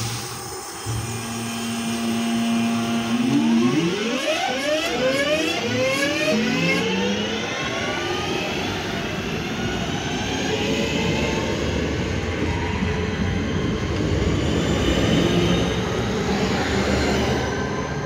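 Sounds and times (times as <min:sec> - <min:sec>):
traction motor whine: 0:00.0 - 0:08.6.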